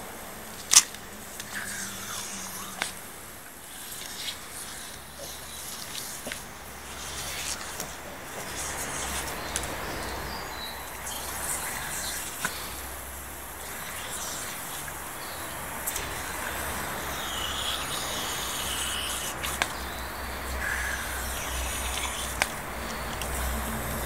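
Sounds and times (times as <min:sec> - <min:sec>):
steady hiss: 0:00.0 - 0:24.0
bird chirping: 0:03.8 - 0:24.0.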